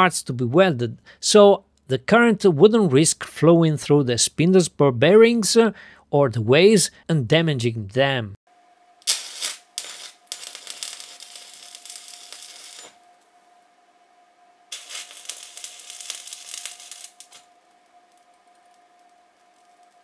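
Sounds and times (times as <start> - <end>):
faint steady tone: 8.5 - 20.0
welding arc crackling: 9.0 - 13.2, 14.7 - 20.0.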